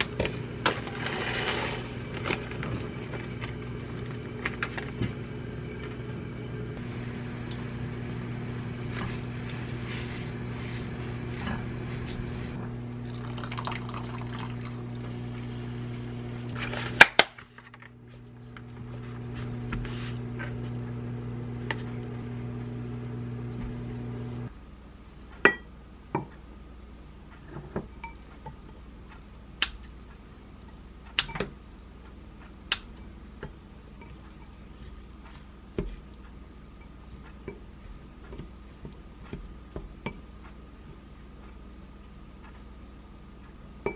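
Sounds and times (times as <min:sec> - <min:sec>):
low hum: 0:00.0 - 0:17.0, 0:17.8 - 0:24.6.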